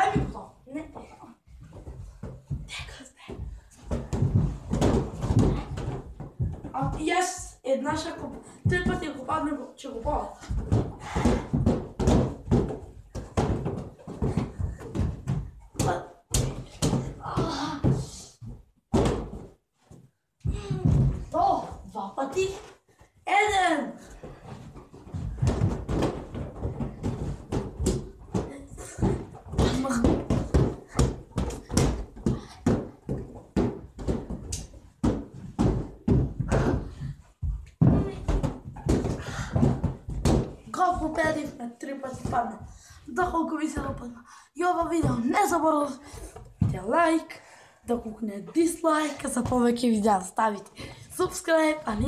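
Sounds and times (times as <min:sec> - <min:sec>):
balloon thumps and slaps: 0:03.4 - 0:07.2, 0:10.0 - 0:19.6, 0:24.6 - 0:44.0.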